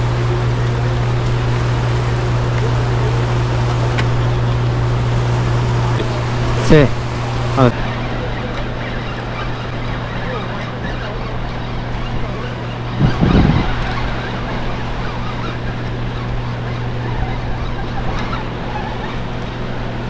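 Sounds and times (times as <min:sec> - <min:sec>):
low motor hum: 0:00.0 - 0:20.0
brief louder rumble: 0:12.9 - 0:14.7.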